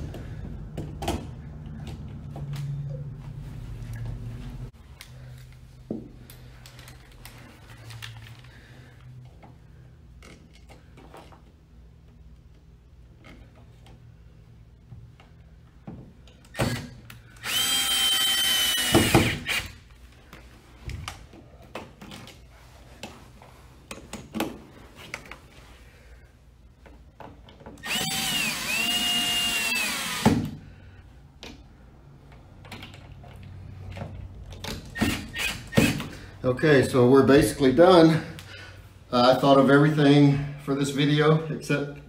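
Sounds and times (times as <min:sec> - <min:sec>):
cordless drill whining: 0:16.6 - 0:19.8, 0:27.8 - 0:30.5, 0:35.0 - 0:36.1.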